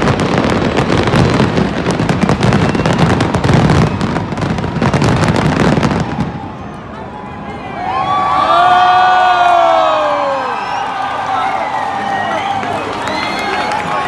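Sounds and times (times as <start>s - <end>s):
fireworks bangs and crackling: 0.0s - 7.1s.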